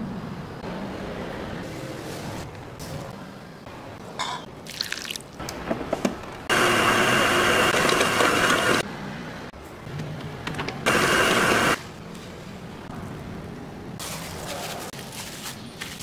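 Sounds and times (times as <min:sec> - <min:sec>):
stand mixer motor whine: 0:06.5 - 0:08.8
ingredients rustling and clinking: 0:14.0 - 0:16.0.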